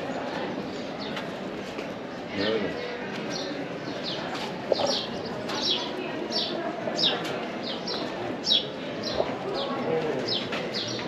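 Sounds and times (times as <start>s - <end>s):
murmur of voices: 0.0s - 11.0s
small birds chirping: 2.4s - 11.0s.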